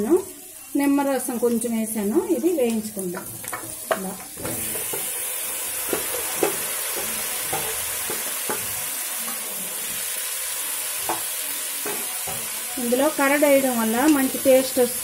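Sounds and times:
chicken sizzling in oil: 0.0 - 15.0
spatula knocking and scraping: 5.8 - 9.4.

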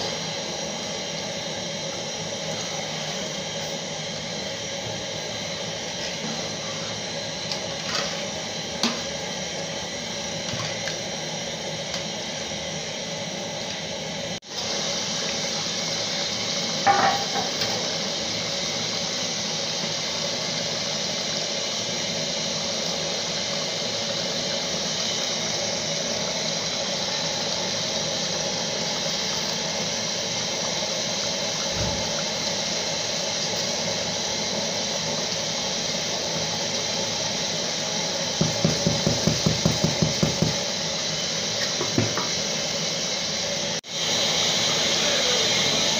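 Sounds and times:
pot of rice boiling: 0.0 - 45.9.

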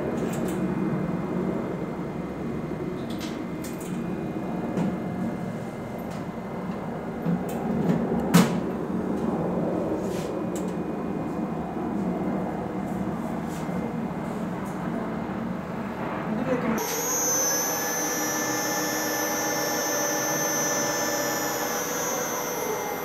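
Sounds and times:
elevator machinery hum: 16.8 - 23.0.

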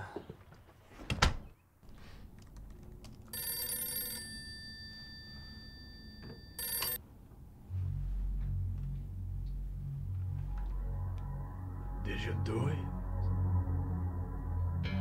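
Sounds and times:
desk telephone bell ringing: 3.3 - 7.0
low pulsing bass: 7.6 - 15.0.

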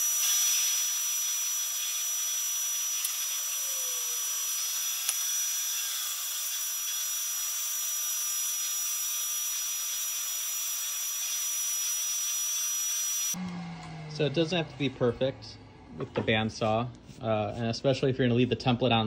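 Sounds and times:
bandsaw cutting wood: 0.0 - 14.7.

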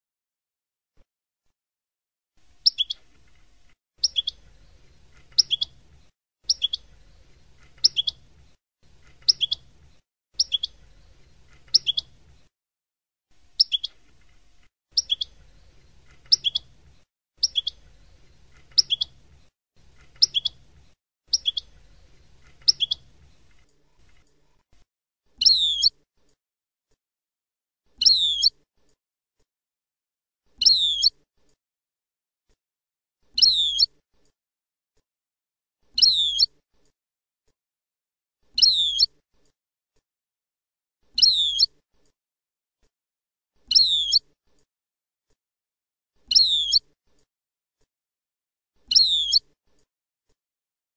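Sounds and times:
bird twittering: 2.6 - 3.1, 4.0 - 5.8, 6.5 - 8.3, 9.1 - 9.7, 10.4 - 12.2, 13.6 - 14.0, 15.0 - 16.8, 17.4 - 19.2, 20.0 - 20.7, 21.3 - 23.3, 25.4 - 25.9, 28.0 - 28.5, 30.6 - 31.1, 36.0 - 36.5, 38.6 - 39.1, 41.2 - 41.7, 43.7 - 44.2, 46.3 - 46.8, 48.9 - 49.4
goldfinch singing: 2.6 - 3.2, 4.0 - 12.4, 13.6 - 14.1, 15.0 - 23.6, 30.6 - 31.1, 36.0 - 36.5, 41.2 - 41.7, 43.7 - 44.2, 46.3 - 46.8, 48.9 - 49.4.

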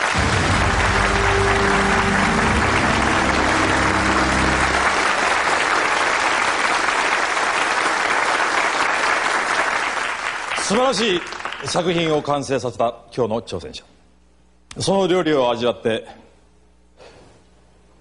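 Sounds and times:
low music sting: 0.0 - 5.8
studio audience applauding: 0.0 - 12.3.

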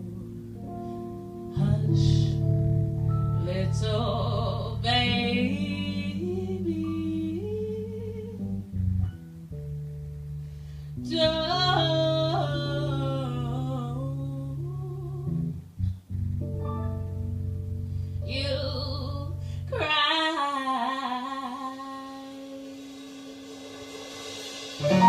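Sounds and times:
jazz band music: 0.0 - 13.7, 24.0 - 25.0.

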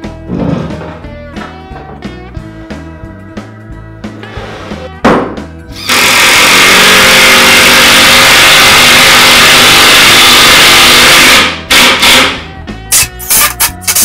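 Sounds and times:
background music: 0.0 - 14.0
thump: 5.0 - 5.5
impact driver hammering: 5.1 - 8.2, 9.2 - 12.4.

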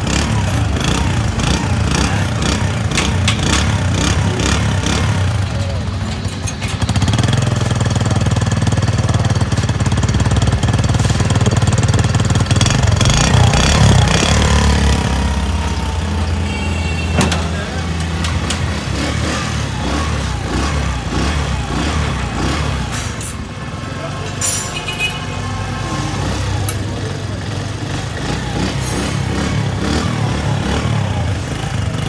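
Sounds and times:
motorcycle engine idling: 0.0 - 24.1.

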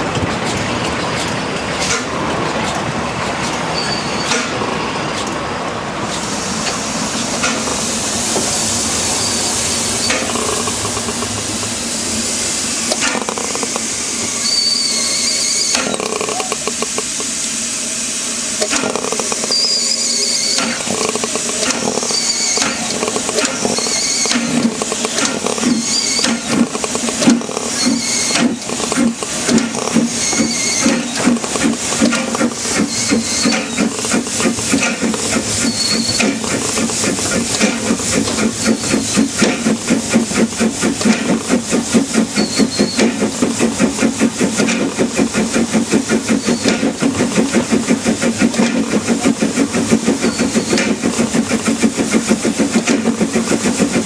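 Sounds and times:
steam locomotive exhaust chuffs: 0.0 - 54.0
rush of steam: 2.9 - 54.0
high wavering squeal: 14.3 - 16.5.

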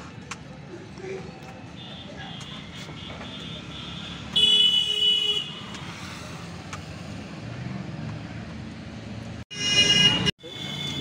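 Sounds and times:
low rumble of street noise: 0.0 - 11.0
vehicle horn honking: 3.0 - 5.6, 9.5 - 11.0.

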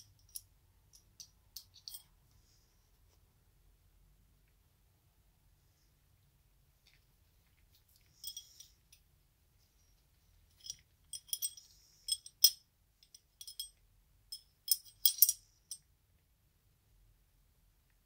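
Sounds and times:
small steel parts clinking: 0.0 - 2.1, 8.2 - 8.7, 10.6 - 15.8.

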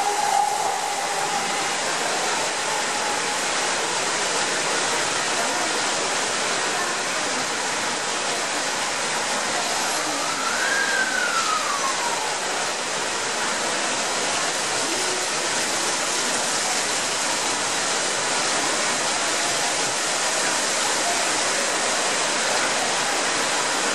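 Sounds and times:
faint rising and falling tone: 0.0 - 3.8
heavy rain pouring: 0.0 - 23.9
water gushing from drain pipes: 0.0 - 23.9.

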